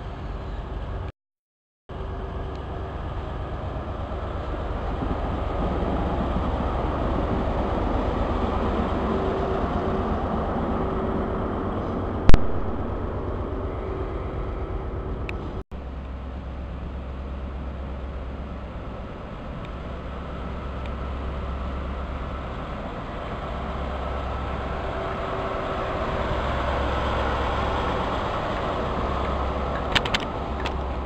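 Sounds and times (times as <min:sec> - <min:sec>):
diesel train rumbling: 0:00.0 - 0:01.1, 0:01.9 - 0:31.0
sharp loud click: 0:12.3 - 0:12.8.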